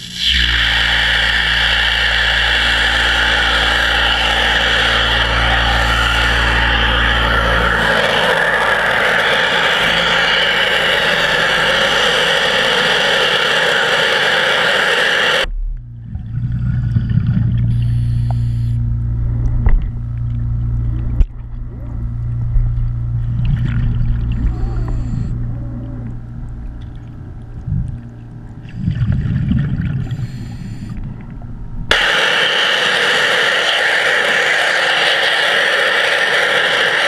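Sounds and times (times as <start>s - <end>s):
underwater pressure-washer jet hissing: 0.0s - 15.5s, 16.8s - 18.8s, 30.0s - 31.0s, 31.9s - 37.0s
low steady hum: 0.0s - 37.0s.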